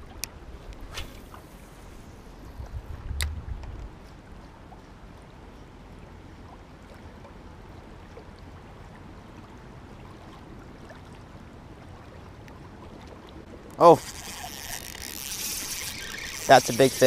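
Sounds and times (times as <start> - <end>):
small waves lapping on shore: 4.0 - 17.0
faint ticks: 13.7 - 17.0.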